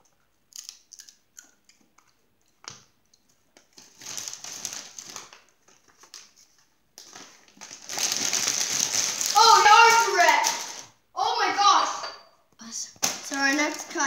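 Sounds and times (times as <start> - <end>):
chip crunching between teeth: 0.5 - 2.2
chip bag crinkling: 3.6 - 11.0, 13.0 - 14.0.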